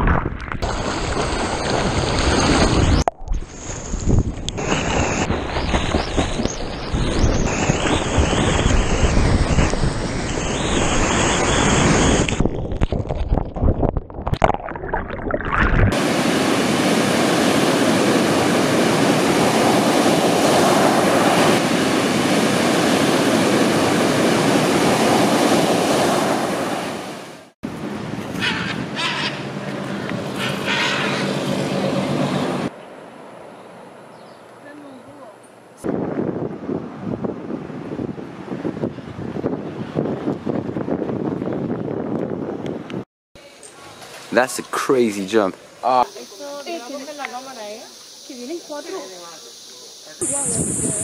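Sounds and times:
waves breaking: 0.0s - 12.4s, 14.4s - 27.6s
wind: 0.0s - 51.0s.

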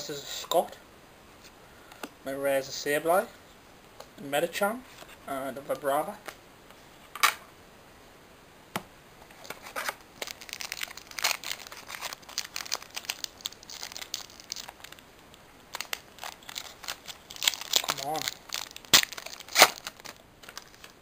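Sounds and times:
foil wrapper crinkling and tearing: 9.3s - 21.0s.

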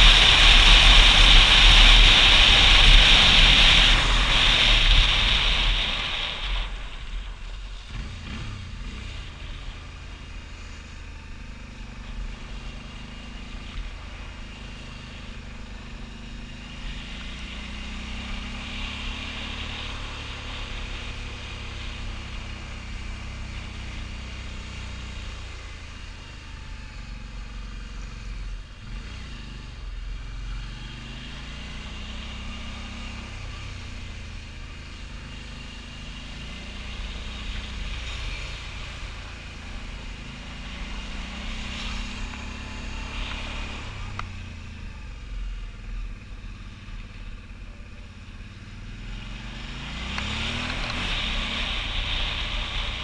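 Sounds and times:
wind rush on helmet: 0.0s - 8.1s
motorcycle engine running: 0.0s - 53.0s.

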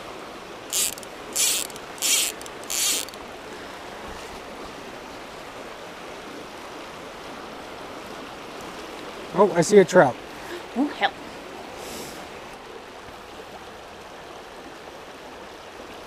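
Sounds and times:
creek flowing over rocks: 0.0s - 16.0s
fishing reel ratcheting: 0.7s - 3.2s.

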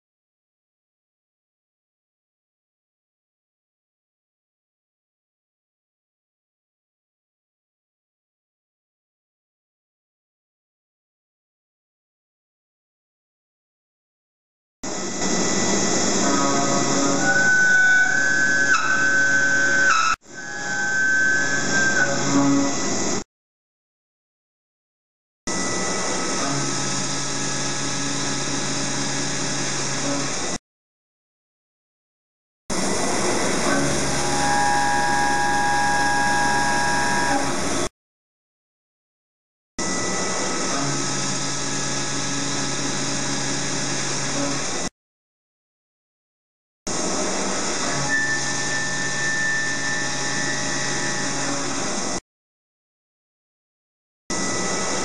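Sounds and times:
milling machine cutting steel: 14.9s - 23.2s, 32.7s - 37.9s, 46.9s - 52.2s
thin high whine: 32.7s - 37.9s, 48.0s - 52.0s.

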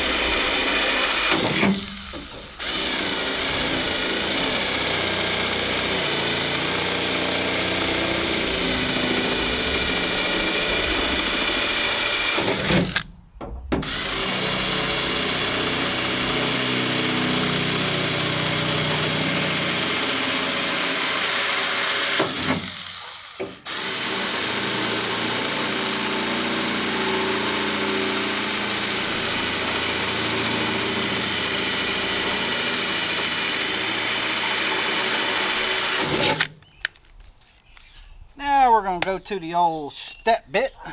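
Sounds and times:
cordless drill boring through metal: 0.0s - 13.1s, 13.8s - 36.5s.

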